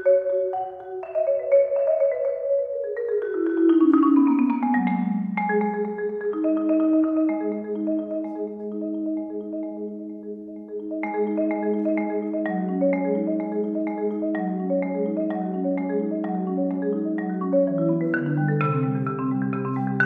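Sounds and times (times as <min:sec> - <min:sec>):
marimba playing: 0:00.0 - 0:20.0.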